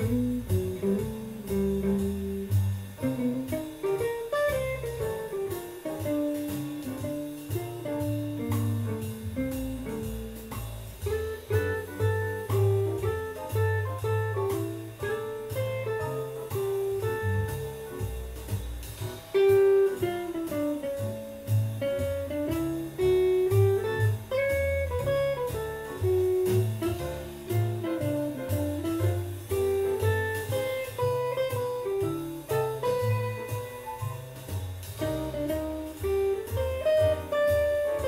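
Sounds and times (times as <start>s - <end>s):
bass line: 0.0s - 38.0s
electric guitar jazz-blues line: 0.0s - 38.0s.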